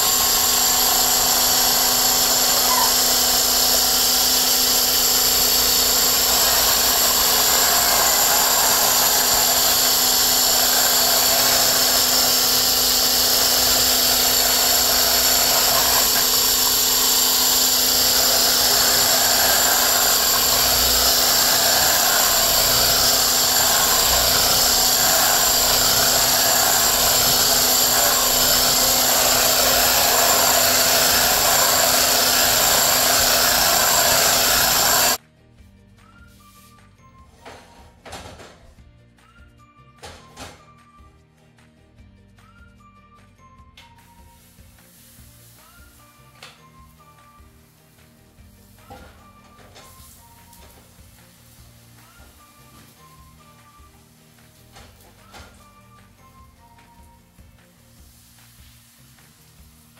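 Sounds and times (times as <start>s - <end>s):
stick blender motor whine: 0.0s - 35.2s.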